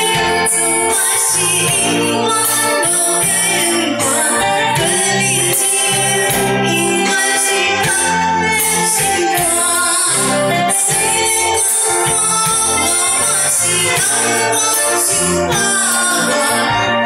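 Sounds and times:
person singing: 0.0s - 17.0s
pop song played by live band: 0.0s - 17.0s.

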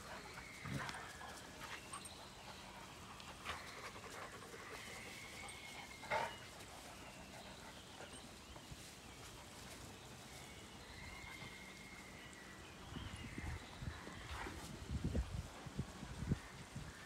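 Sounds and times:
dogs play-fighting: 0.0s - 16.0s.

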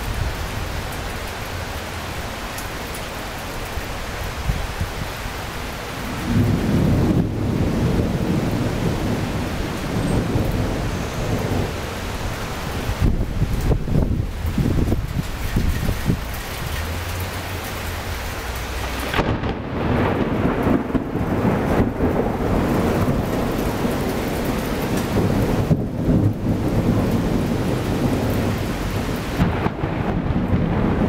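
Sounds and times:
heavy rain: 0.0s - 31.0s
thunder crack and rumble: 6.1s - 17.0s, 18.7s - 31.0s.

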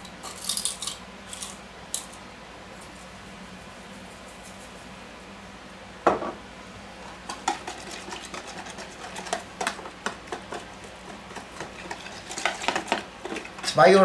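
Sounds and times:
whisk clicking and scraping in tub: 7.3s - 13.8s.

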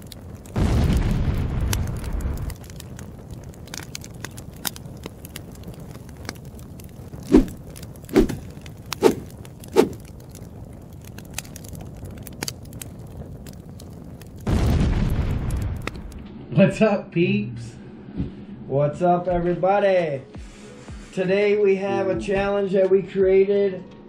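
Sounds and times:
fire crackling: 0.0s - 16.4s
deep boom: 0.6s - 2.6s, 14.4s - 16.8s.

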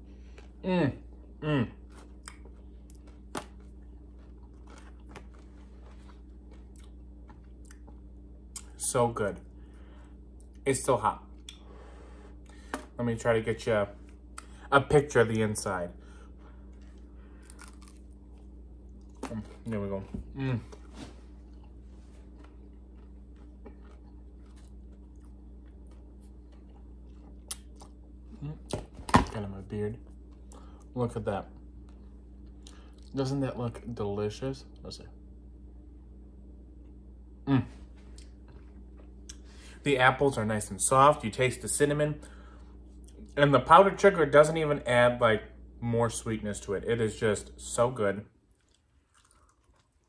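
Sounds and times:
steady low hum: 0.0s - 50.0s
person chewing crispy food: 1.8s - 8.7s, 16.3s - 19.8s, 20.5s - 28.6s, 48.5s - 50.0s.

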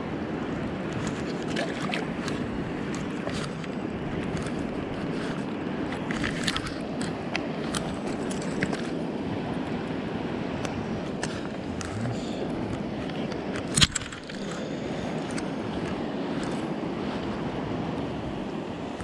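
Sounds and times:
stream running over stones: 0.9s - 9.7s, 11.0s - 17.4s.

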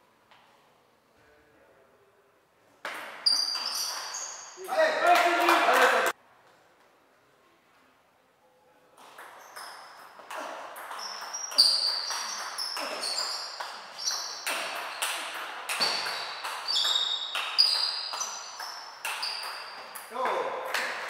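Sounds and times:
table tennis ball hit with rackets: 2.8s - 4.3s, 9.0s - 21.0s
ball bouncing on table: 10.8s - 21.0s.

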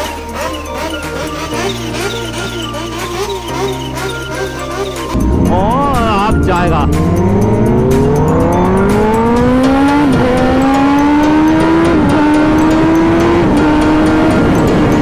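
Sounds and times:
motorcycle engine accelerating hard: 0.0s - 15.0s.

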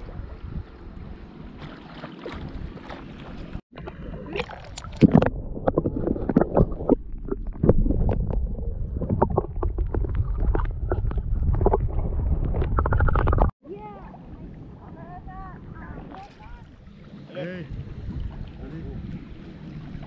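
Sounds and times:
water at the surface: 0.0s - 20.0s
wind: 0.0s - 20.0s
underwater clicks and crackles: 2.8s - 13.5s
underwater churning rumble: 3.5s - 13.5s.

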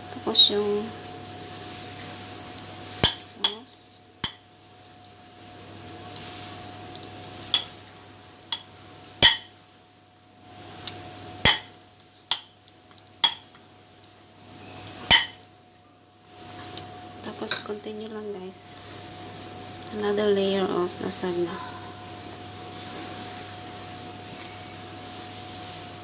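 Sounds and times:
spoon clinking on ceramic dish: 7.6s - 7.8s, 8.5s - 9.5s, 13.2s - 13.5s, 15.1s - 15.4s
soft scraping and smearing: 21.8s - 26.0s.

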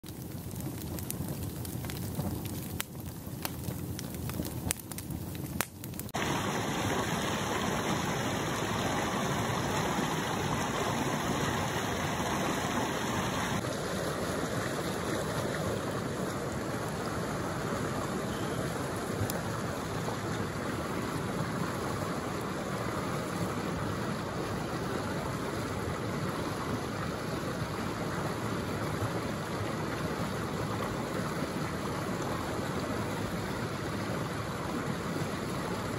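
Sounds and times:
wood fire crackling: 0.0s - 17.4s
river rushing over rocks: 6.2s - 35.9s.

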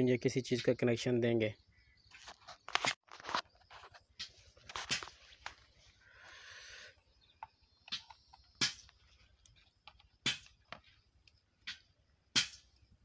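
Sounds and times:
brief rustle: 2.1s - 5.9s.

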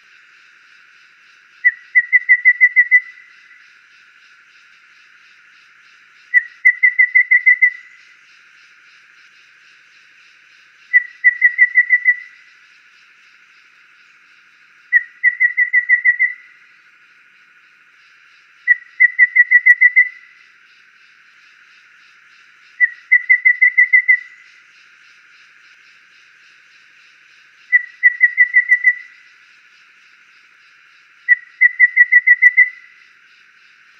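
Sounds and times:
bird whistled song: 1.6s - 3.6s, 6.2s - 8.2s, 10.8s - 12.5s, 14.9s - 16.6s, 18.6s - 20.4s, 22.8s - 24.6s, 27.6s - 29.3s, 31.2s - 33.0s.

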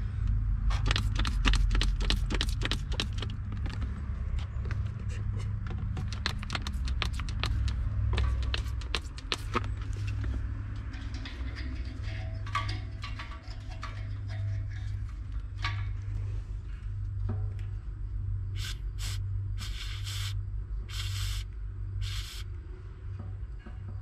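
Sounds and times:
steady low rumble: 0.0s - 24.0s
spray bottle spritzes: 0.8s - 3.2s, 18.6s - 21.4s, 22.0s - 22.4s.

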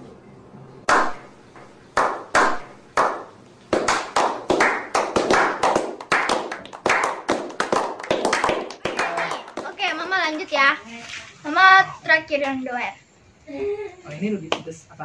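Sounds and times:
people clapping with echo: 0.9s - 1.2s, 2.0s - 9.8s.

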